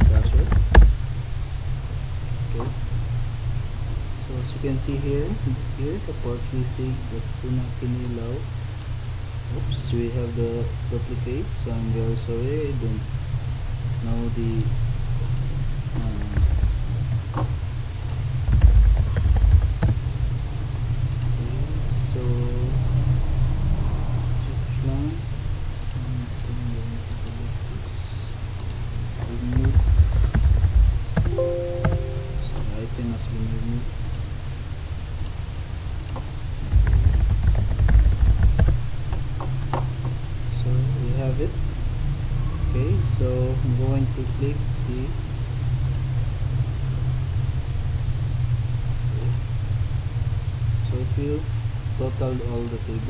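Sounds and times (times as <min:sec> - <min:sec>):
low thumps: 0:00.0 - 0:02.9, 0:15.6 - 0:21.0, 0:29.2 - 0:32.9, 0:36.2 - 0:40.2
low rumble: 0:00.0 - 0:04.8, 0:14.4 - 0:34.0
low hum: 0:00.0 - 0:53.0
sharp clicks: 0:14.6 - 0:20.1, 0:28.6 - 0:32.0, 0:36.0 - 0:39.8.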